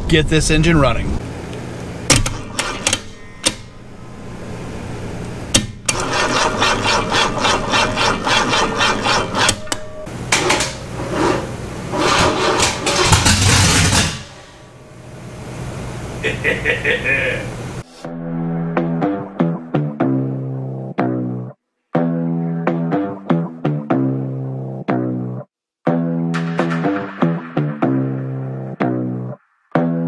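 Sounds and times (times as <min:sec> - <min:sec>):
starter motor cranking engine: 0:02.1 - 0:03.6, 0:05.8 - 0:09.7, 0:12.1 - 0:13.4.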